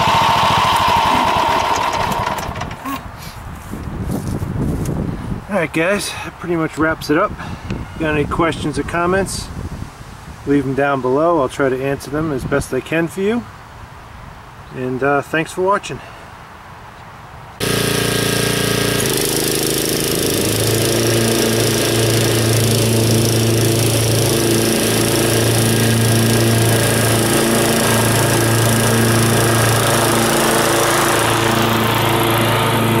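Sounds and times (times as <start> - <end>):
lawn mower engine running: 0.0 - 3.2, 17.6 - 33.0.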